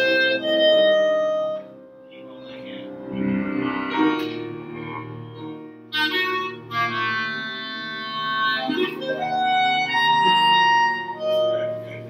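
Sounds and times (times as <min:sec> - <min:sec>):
clarinet playing held notes: 0:00.0 - 0:12.0
piano accompaniment: 0:00.0 - 0:12.0.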